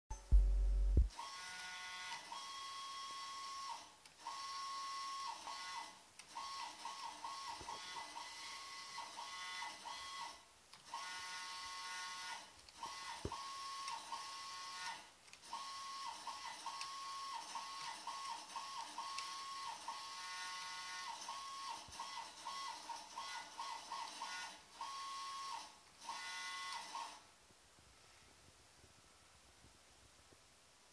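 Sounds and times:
loud low hum: 0.1 - 1.1.

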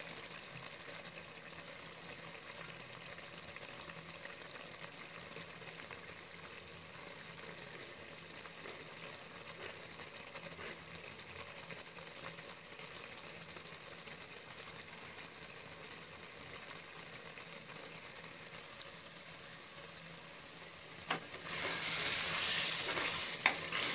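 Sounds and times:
food sizzling in a pan: 0.0 - 23.9.

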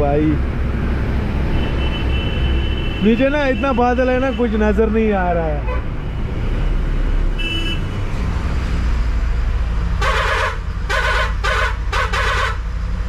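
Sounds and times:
vehicle horn blasts: 7.4 - 7.8, 10.0 - 12.6.

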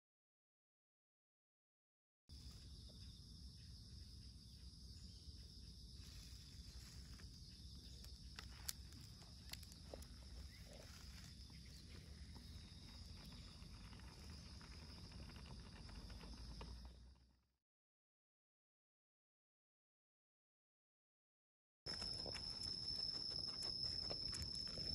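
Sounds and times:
dog walking on gravel: 21.9 - 24.9.

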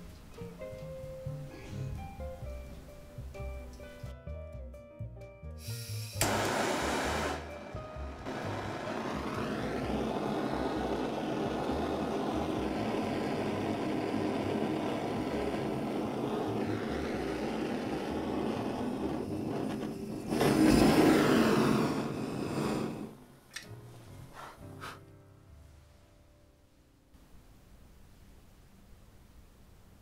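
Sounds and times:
blowtorch flame hissing: 5.6 - 23.3.

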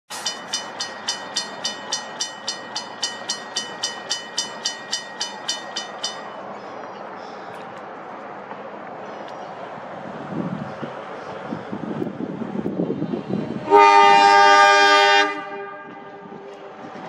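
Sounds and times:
railroad crossing bell ringing: 0.1 - 7.2.

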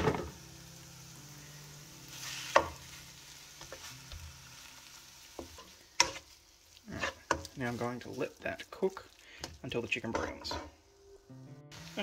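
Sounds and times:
chicken and onions frying: 0.0 - 11.1, 11.7 - 12.0
spatula scraping and knocking pan: 5.4 - 6.4.

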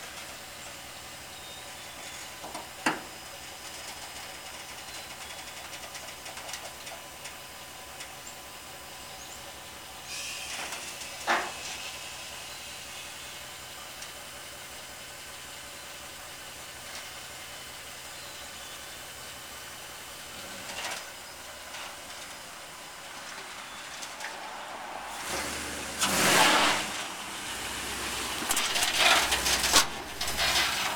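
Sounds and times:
pickup truck engine idling: 0.0 - 30.9
air hissing: 10.0 - 13.0.

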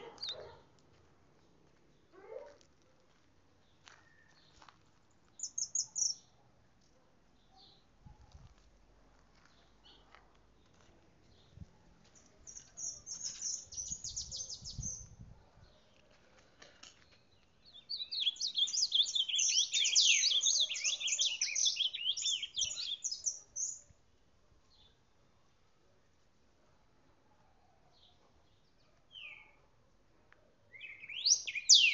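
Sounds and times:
bird singing warbling song: 0.0 - 0.6, 5.4 - 6.4, 12.5 - 15.2, 17.1 - 23.9, 29.1 - 29.6, 30.7 - 31.9.

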